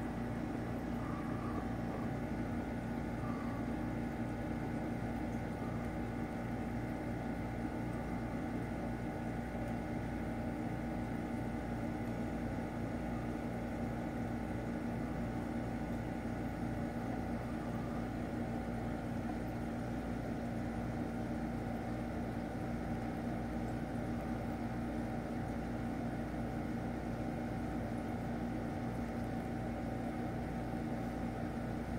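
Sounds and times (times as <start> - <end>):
aquarium pump humming: 0.0 - 31.9.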